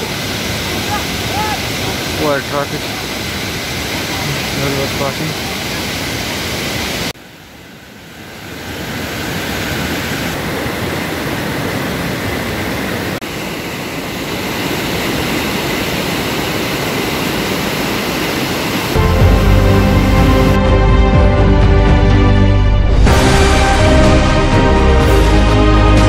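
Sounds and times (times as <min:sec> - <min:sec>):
stream rushing over rocks: 0:00.0 - 0:19.6.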